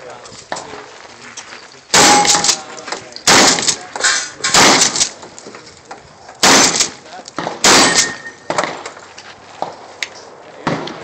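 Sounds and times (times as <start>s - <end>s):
rifle shots: 1.9s - 2.6s, 3.2s - 3.8s, 4.4s - 5.2s, 6.4s - 9.0s.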